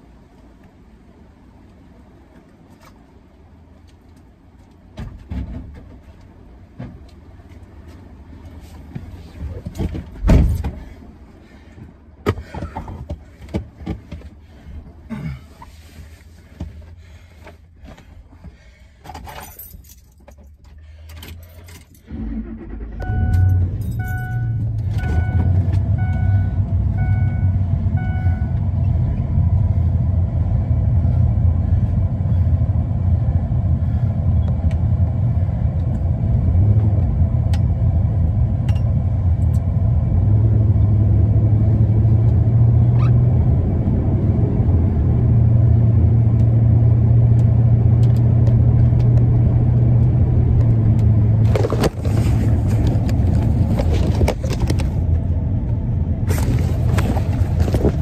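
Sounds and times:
car engine starting and running: 0.0 - 58.0
jangle of keys: 19.3 - 20.5
car warning chime beeping: 22.9 - 28.6.

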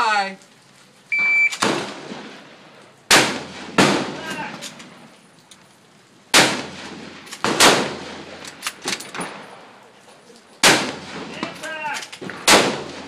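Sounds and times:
rifle shots with echo: 1.5 - 4.9, 6.3 - 9.8, 10.6 - 13.0.

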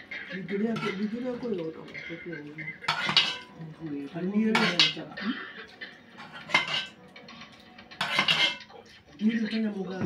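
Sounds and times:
metal spoon scraping metal pot: 0.0 - 3.7, 4.5 - 5.2, 5.9 - 8.8.

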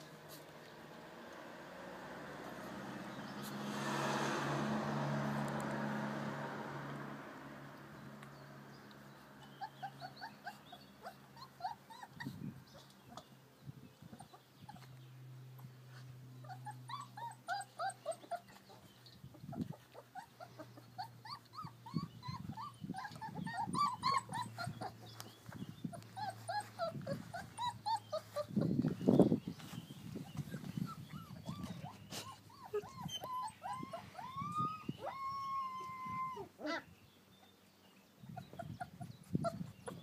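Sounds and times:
puppies whimpering: 9.3 - 13.4, 14.0 - 37.0, 38.2 - 40.0.

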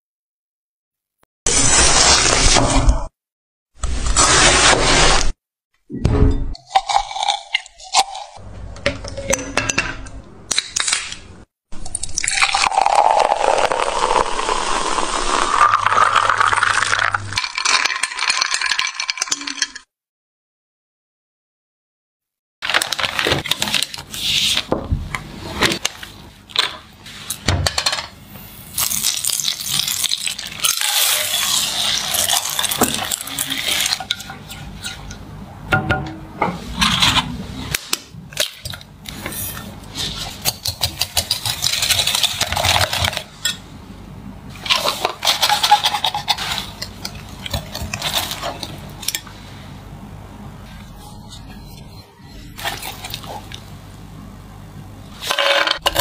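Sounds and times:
whisk whisking mixture: 30.0 - 35.2, 38.7 - 43.6, 44.6 - 49.2.

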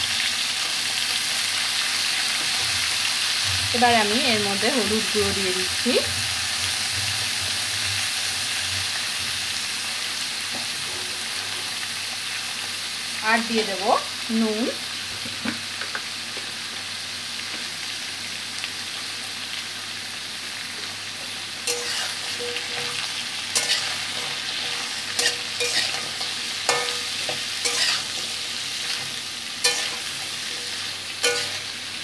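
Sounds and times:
vegetables sizzling in a pan: 0.0 - 32.0
metal spatula scraping a pan: 21.6 - 31.8.

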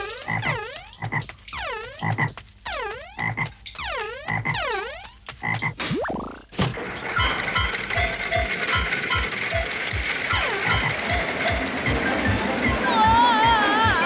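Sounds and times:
cartoon frog croaking: 0.0 - 6.5, 10.3 - 11.0
sharp clatter: 5.7 - 12.3.

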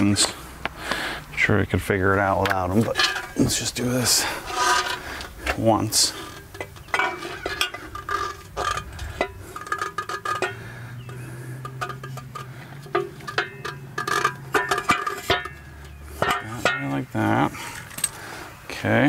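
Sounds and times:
metal parts clinking: 2.8 - 3.7, 6.1 - 16.9, 17.6 - 18.2.

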